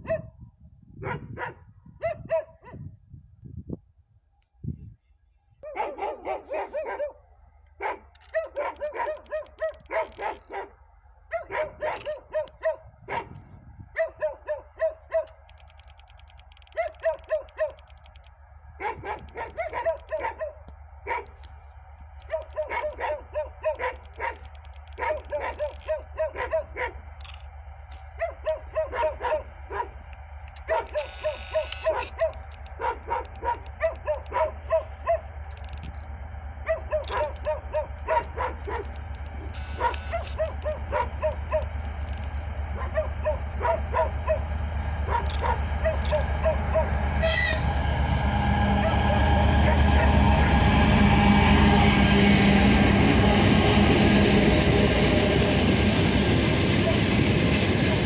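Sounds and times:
dog barking: 0.0 - 0.4, 1.0 - 2.8, 5.6 - 7.2, 7.8 - 13.4, 14.0 - 15.4, 16.7 - 17.8, 18.8 - 21.4, 22.3 - 27.0, 28.2 - 30.0, 30.6 - 35.3, 36.6 - 39.0, 39.8 - 41.7, 42.8 - 44.5, 45.1 - 47.0
diesel locomotive engine drone: 0.0 - 58.0.

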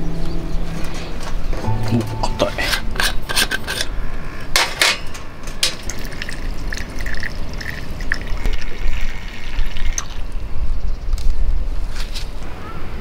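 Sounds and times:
metal lid clicking and scraping: 1.6 - 6.0
fuel trickling into burner: 4.7 - 10.2.

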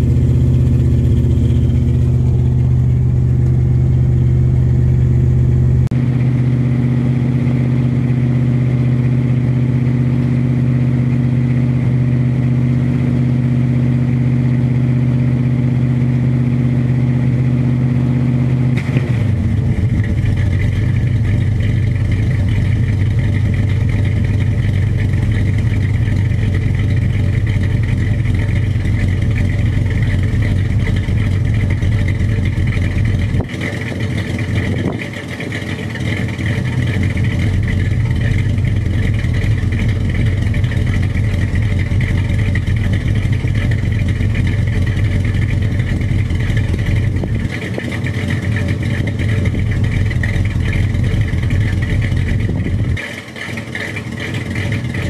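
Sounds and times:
pickup truck engine running: 0.0 - 55.0.

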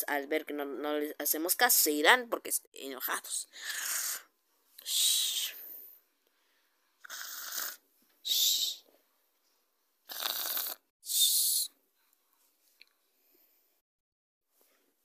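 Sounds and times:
person imitating snoring: 3.6 - 4.3, 7.0 - 7.8, 10.1 - 10.9.

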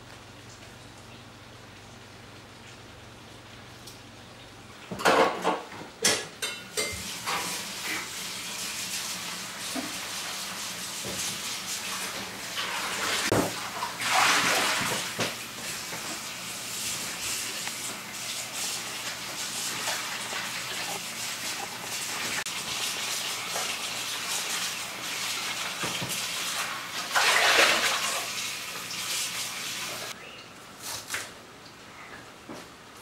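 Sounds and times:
water running and splashing: 7.0 - 30.2.

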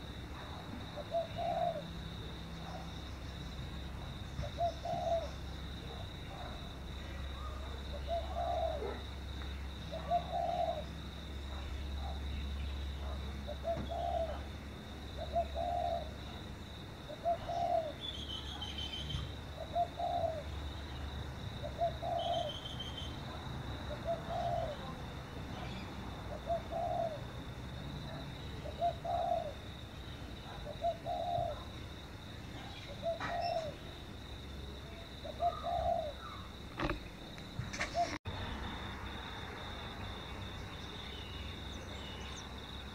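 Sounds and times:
dove cooing: 0.4 - 2.8, 4.4 - 6.6, 7.3 - 9.1, 9.9 - 11.0, 13.0 - 14.5, 15.2 - 16.4, 17.1 - 18.0, 19.1 - 20.5, 21.6 - 22.7, 23.9 - 25.0, 25.6 - 27.4, 28.0 - 29.8, 30.4 - 31.8, 32.6 - 34.0, 35.1 - 37.0, 37.7 - 38.2.

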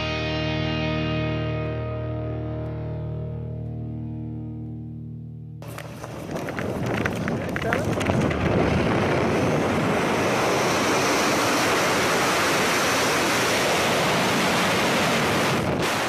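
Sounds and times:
freefall wind rush on microphone: 5.8 - 16.0.

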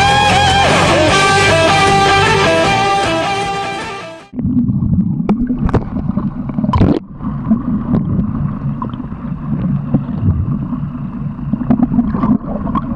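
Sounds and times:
splash of bubbles: 4.3 - 10.7
underwater rushing and bubbling: 4.3 - 12.9.

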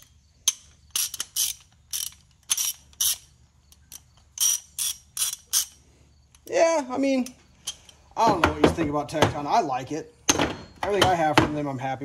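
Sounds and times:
ratchet clicking: 0.0 - 6.5.

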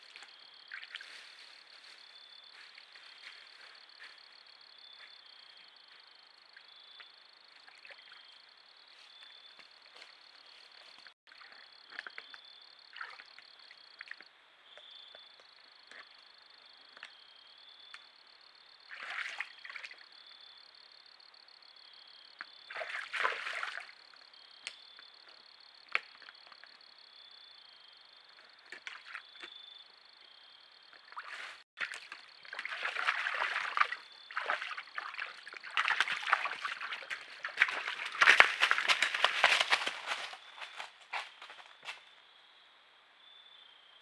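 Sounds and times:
insect chorus: 0.0 - 44.0
scuffling rustling: 36.9 - 42.1.

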